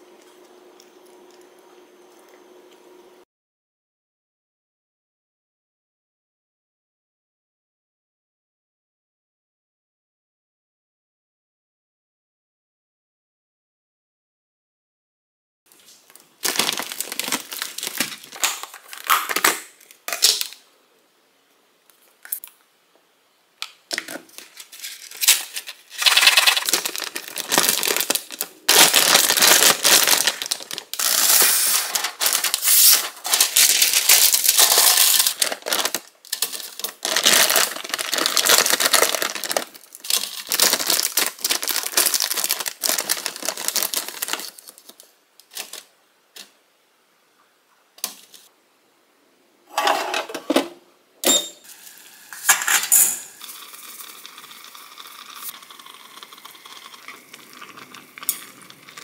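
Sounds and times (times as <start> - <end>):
plastic bag crinkling: 15.7 - 20.6, 23.9 - 45.9
frozen pieces clattering: 16.4 - 19.6, 24.0 - 45.8.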